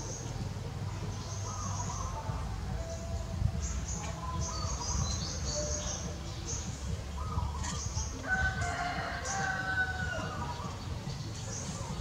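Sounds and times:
small birds chirping: 0.0s - 12.0s
steady low rumble: 0.0s - 12.0s
rooster crowing: 8.2s - 10.6s.

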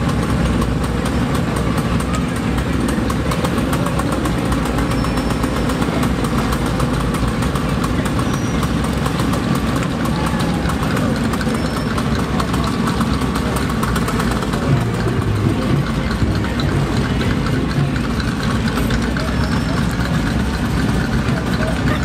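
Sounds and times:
pickup truck pulling in: 0.0s - 22.0s
vehicle engines idling: 0.0s - 22.0s.

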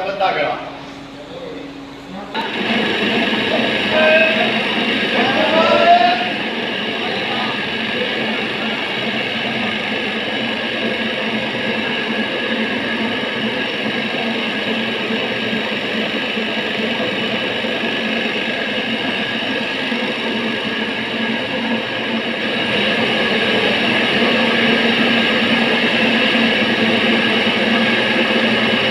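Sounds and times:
feed plant machinery running: 0.0s - 28.9s.

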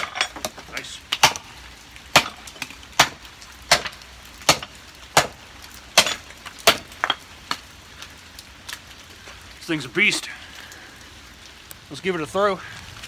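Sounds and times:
axe chopping wood: 0.0s - 1.5s, 2.1s - 5.4s, 6.0s - 7.6s.

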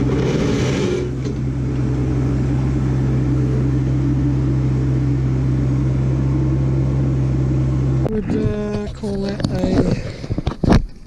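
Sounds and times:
hydraulics lifting bucket: 0.0s - 1.8s
diesel engine running: 0.0s - 10.7s.

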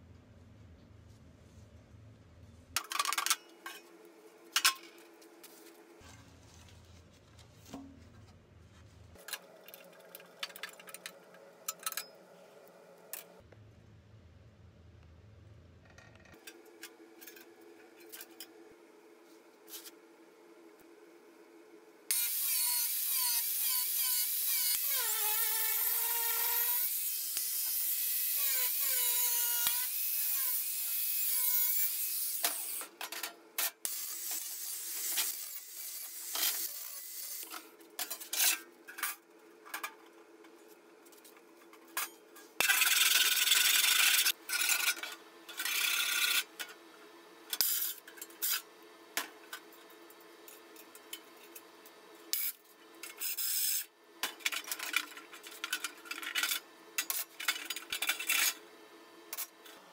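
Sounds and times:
angle grinder cutting steel sheet: 22.1s - 32.9s, 33.9s - 37.5s.

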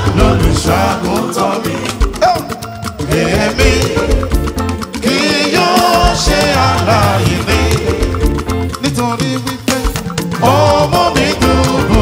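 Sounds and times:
choir singing: 0.0s - 8.6s, 10.4s - 12.0s
live band with drums: 0.0s - 12.0s.

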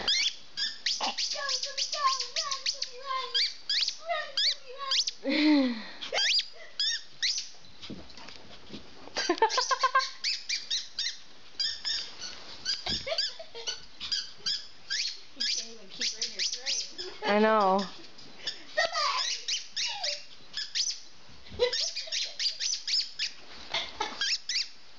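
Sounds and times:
dog whining: 6.1s - 7.0s
small dog yipping: 6.1s - 7.5s, 9.5s - 17.2s, 19.2s - 21.0s.

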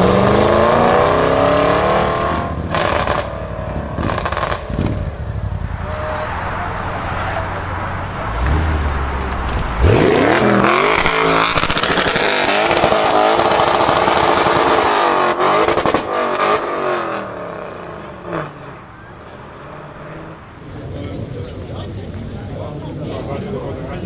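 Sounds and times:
car engine accelerating hard: 0.0s - 18.8s
sharp exhaust crackles: 8.4s - 16.1s.

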